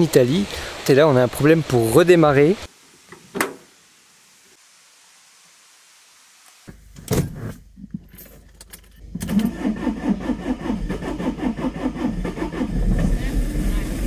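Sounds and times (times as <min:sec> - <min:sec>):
keys jingling: 0:08.0 - 0:09.0
starter motor cranking engine: 0:09.0 - 0:14.0.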